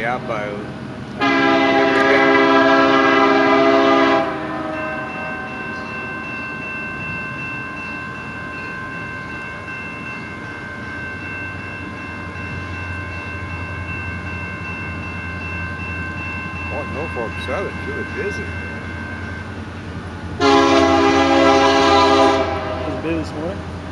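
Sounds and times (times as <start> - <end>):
low rumble of train: 0.0 - 23.9
locomotive air horn: 1.2 - 5.1, 20.4 - 23.1
faint steady high tones: 4.6 - 19.6.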